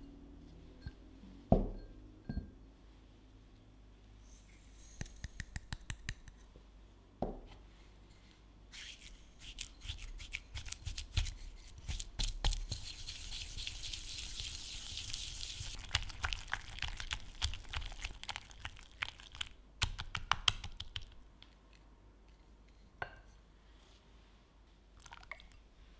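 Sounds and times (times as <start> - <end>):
whisk scraping glass bowl: 12.5 - 15.8.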